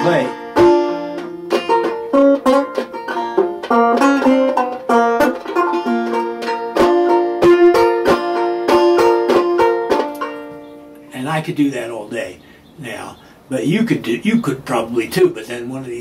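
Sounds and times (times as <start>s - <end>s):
banjo plucked notes: 0.0s - 11.1s.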